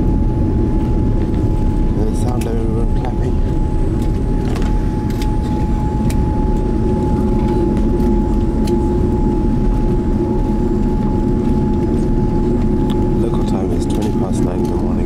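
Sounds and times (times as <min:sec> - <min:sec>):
engine and airflow rumble: 0:00.0 - 0:15.0
steady whine: 0:00.0 - 0:15.0.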